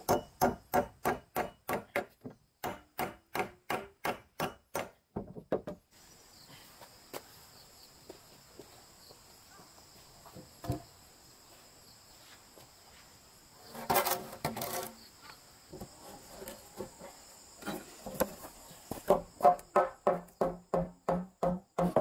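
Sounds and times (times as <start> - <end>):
insects droning: 0.0 - 22.0
wood knocking and scraping: 5.1 - 5.8, 15.7 - 22.0.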